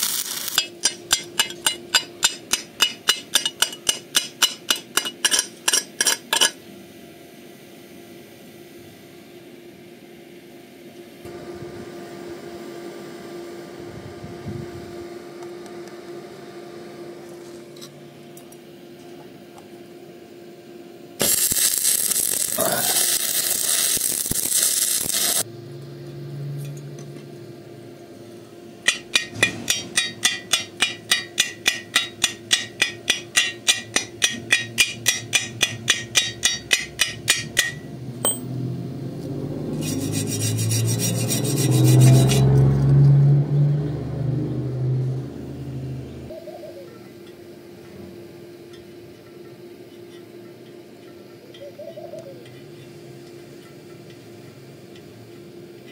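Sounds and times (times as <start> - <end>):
arc welding hiss: 0.0 - 6.5, 21.2 - 25.5
chipping hammer tapping metal: 0.1 - 6.6, 28.8 - 38.5.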